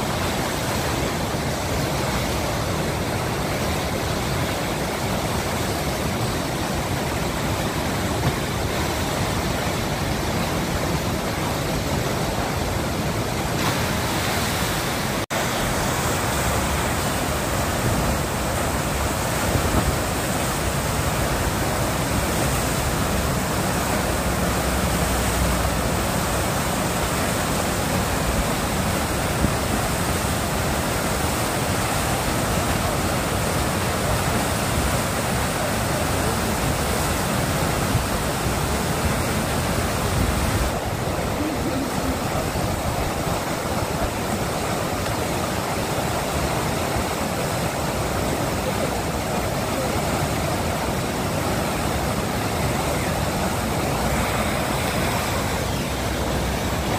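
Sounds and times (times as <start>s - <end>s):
river water rushing: 0.0s - 56.9s.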